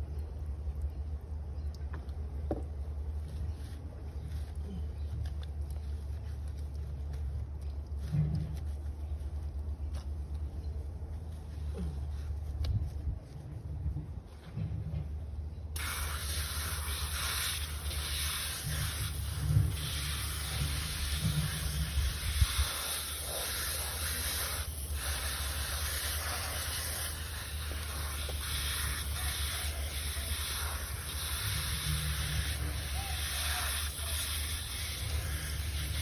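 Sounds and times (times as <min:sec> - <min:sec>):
hose nozzle spraying water: 0:15.8 - 0:36.0.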